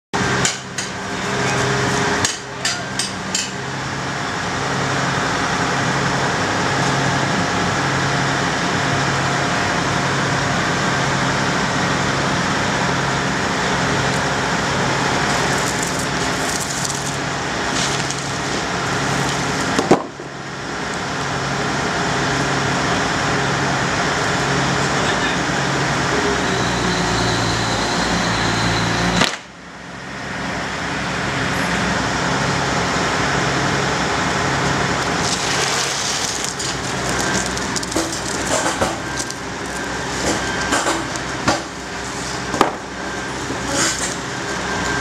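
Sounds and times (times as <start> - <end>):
diesel engine with low pulse: 0.2 - 45.0
sharp metallic clanks: 2.2 - 3.6.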